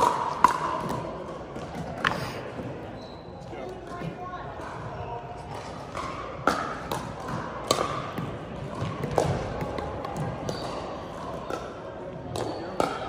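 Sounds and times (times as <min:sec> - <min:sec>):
paddles striking plastic balls: 0:00.0 - 0:02.7, 0:05.5 - 0:13.0.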